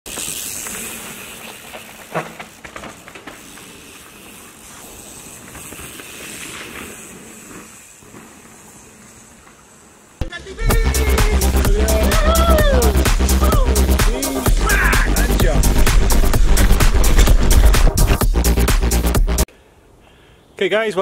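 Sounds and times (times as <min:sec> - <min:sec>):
bike tyres rolling on loose ground: 0:00.0 - 0:10.2, 0:11.3 - 0:18.6
bike knocks and rattles: 0:00.1 - 0:03.8.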